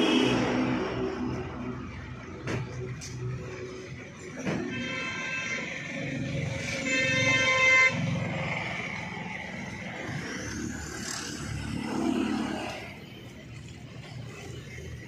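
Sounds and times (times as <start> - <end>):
vehicle horn: 0.0 - 0.8, 4.6 - 8.4
road traffic rumble: 0.0 - 15.0
vehicle passing: 5.8 - 15.0.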